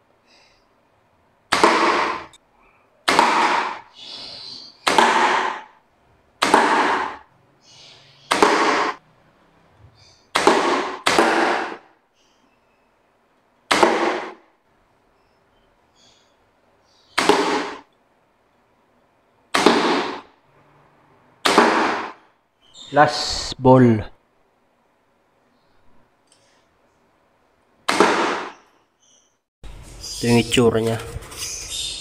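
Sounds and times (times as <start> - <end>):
air gun shots popping: 1.5 - 2.4, 3.1 - 3.9, 4.8 - 5.7, 6.4 - 7.3, 8.3 - 9.0, 10.3 - 11.9, 13.7 - 14.5, 17.1 - 17.9, 19.5 - 20.3, 21.4 - 22.3, 27.8 - 28.7.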